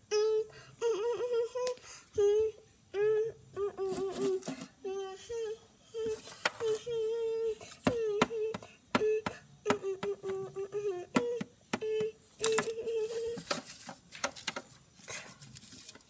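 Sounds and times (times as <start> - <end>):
child humming a tune: 0.0 - 13.6
plastic dolls knocking and tapping: 6.4 - 6.7, 7.8 - 14.8.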